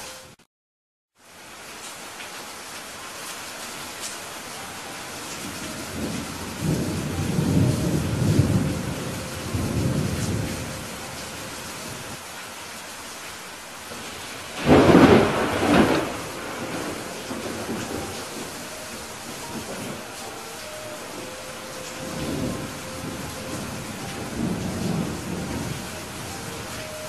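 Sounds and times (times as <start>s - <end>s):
steady rain: 1.2s - 27.0s
low rolling thunder: 5.4s - 12.2s, 13.9s - 27.0s
sharp thunderclap: 14.5s - 18.6s.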